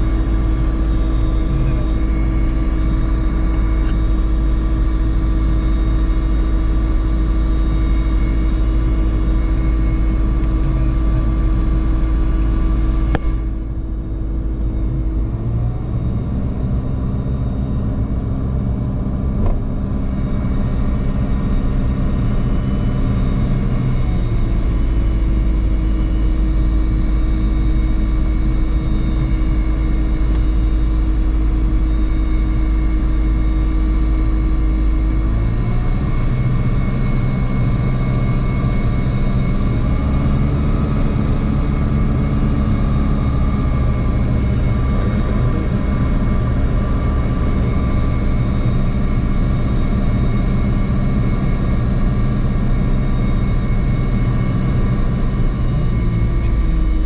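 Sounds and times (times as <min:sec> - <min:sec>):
aircraft engine and propeller: 0:00.0 - 0:57.0.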